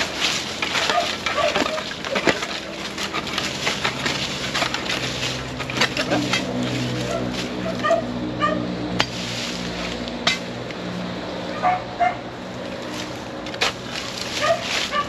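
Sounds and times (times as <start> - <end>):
digging tools crunching in soil: 0.0 - 8.3, 8.9 - 10.8, 12.5 - 15.0.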